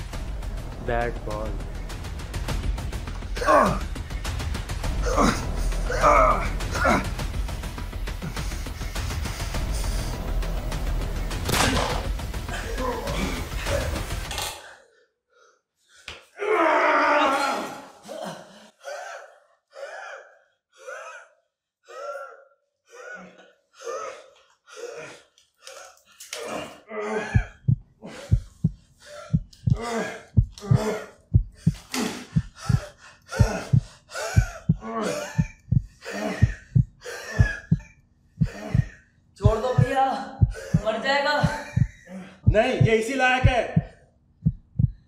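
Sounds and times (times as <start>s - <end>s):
person gasping and panting: 18.0s - 39.0s, 39.6s - 42.9s.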